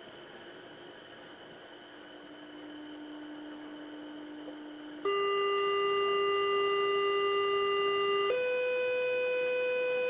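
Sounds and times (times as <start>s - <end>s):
test tone from phone speaker: 2.8s - 10.0s.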